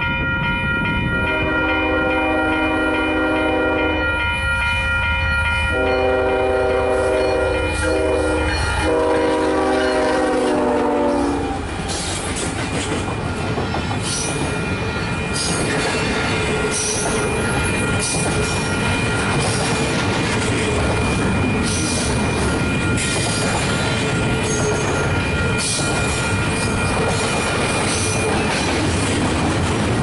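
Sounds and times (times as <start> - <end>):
locomotive air horn blasts: 1.2 - 4.1, 5.7 - 11.6
train wheels clicking over rail joints: 11.5 - 30.0.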